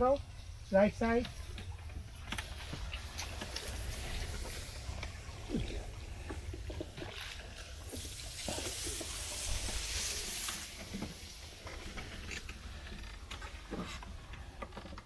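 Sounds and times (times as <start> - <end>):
water swishing: 0.3 - 14.6
hissing rush: 7.6 - 12.0.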